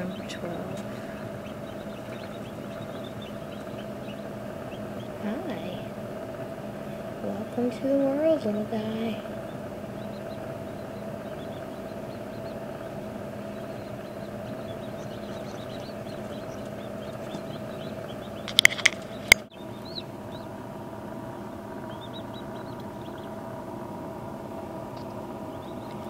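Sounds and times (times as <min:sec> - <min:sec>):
chicks peeping: 0:00.0 - 0:26.0
steady hum: 0:00.0 - 0:26.0
sharp clicks: 0:18.4 - 0:19.5.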